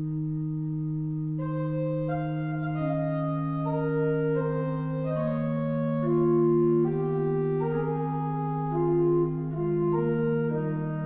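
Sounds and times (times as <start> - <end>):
pipe organ chords: 0.0 - 11.0.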